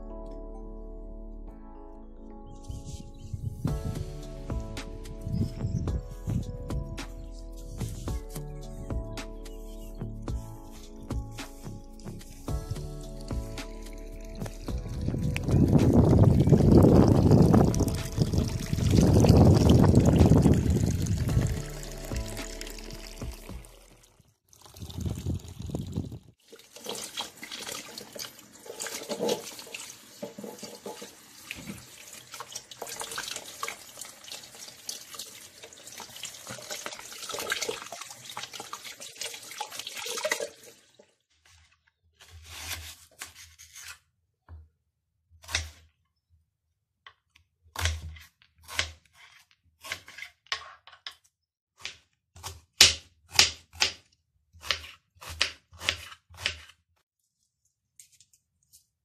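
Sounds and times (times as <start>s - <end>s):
tap water splashing into sink: 15.4s - 23.6s, 26.5s - 41.1s
knife cutting on plastic board: 45.4s - 45.9s, 47.8s - 50.8s, 54.6s - 56.8s.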